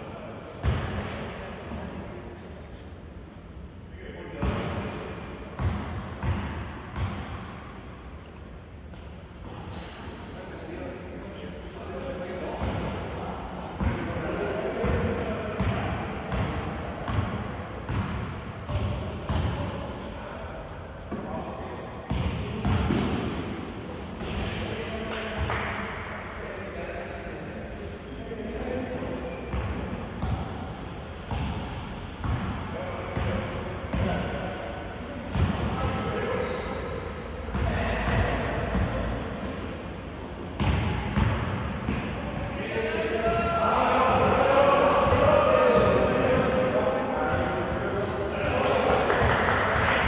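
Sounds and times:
gym background noise: 0.0s - 50.0s
basketball bouncing on court: 0.6s - 1.0s, 5.6s - 7.6s, 15.6s - 19.7s, 22.0s - 23.5s, 29.5s - 30.5s, 31.3s - 34.2s, 35.3s - 35.9s, 40.6s - 42.1s
voices: 41.8s - 50.0s.

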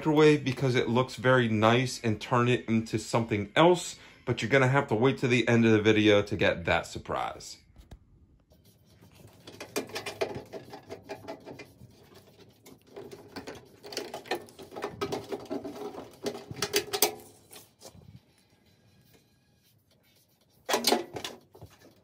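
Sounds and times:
metal parts clicking and rattling: 13.1s - 17.6s.

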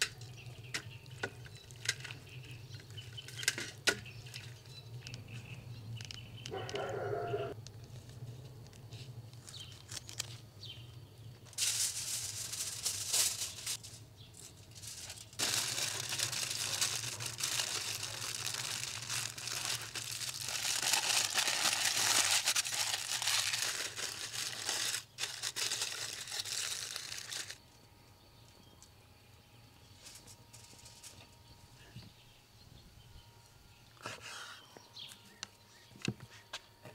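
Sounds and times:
aluminium foil crinkling: 0.0s - 5.2s, 7.6s - 10.8s, 11.4s - 27.6s, 29.9s - 31.3s.

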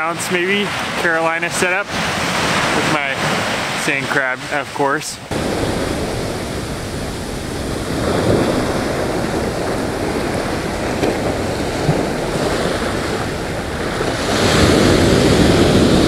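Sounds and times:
surf washing up beach: 0.0s - 16.0s
wind on microphone: 5.2s - 16.0s.

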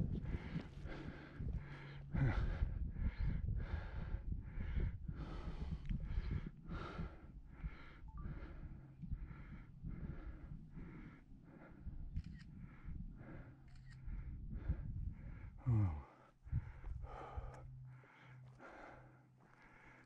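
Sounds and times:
hard rhythmic breathing: 0.0s - 20.0s
low rumble: 0.0s - 20.0s.

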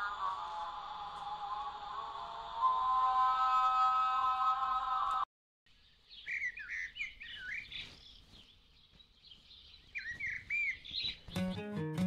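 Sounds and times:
small birds chirping: 5.7s - 11.9s
music with held notes: 11.4s - 12.0s.

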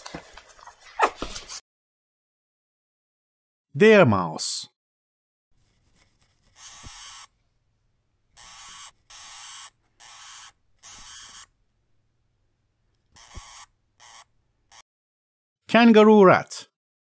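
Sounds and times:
mouse hissy bursts: 6.6s - 7.3s.

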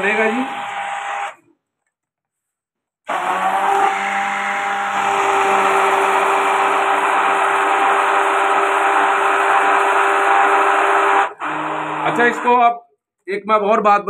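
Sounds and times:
stick blender whirring: 0.0s - 1.5s, 3.1s - 12.7s.

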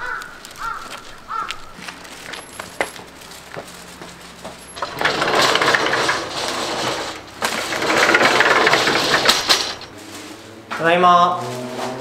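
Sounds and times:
light footsteps: 0.1s - 4.8s
sliding glass door rattling: 4.6s - 9.9s.

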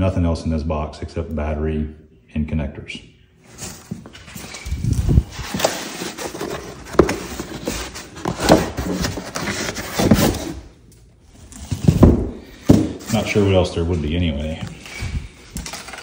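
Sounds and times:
foam and cardboard rubbing: 4.6s - 10.6s.

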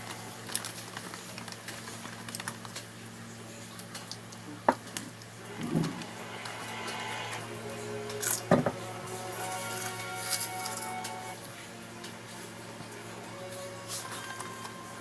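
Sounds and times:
plastic cups and bags rustling: 0.0s - 2.9s
steady low hum: 5.0s - 13.2s.

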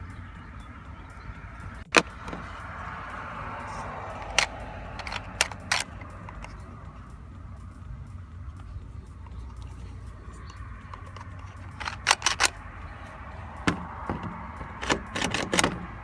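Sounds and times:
hard plastic parts clicking: 1.8s - 2.6s, 4.1s - 6.7s, 8.5s - 12.8s, 13.6s - 16.0s.

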